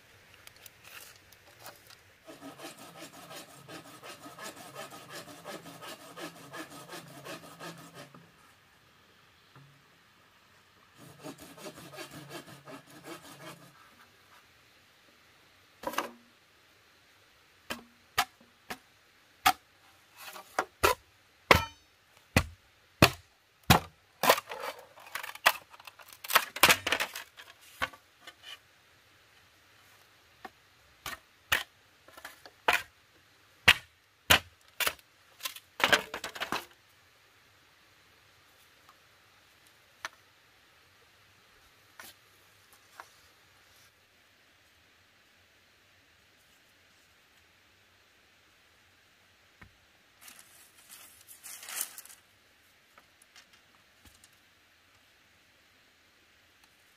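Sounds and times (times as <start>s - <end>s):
saw rasping through bamboo: 2.2s - 8.3s, 11.0s - 13.9s
machete chopping bamboo: 20.8s - 24.4s, 33.6s - 35.0s.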